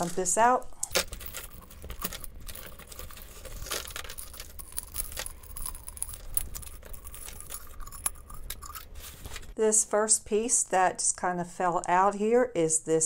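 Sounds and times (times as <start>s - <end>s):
jewelry clinking and rattling: 0.0s - 9.2s.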